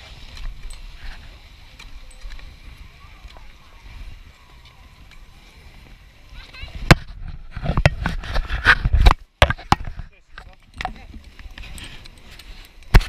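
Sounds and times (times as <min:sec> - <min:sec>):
fabric rubbing against camera: 0:06.5 - 0:09.2.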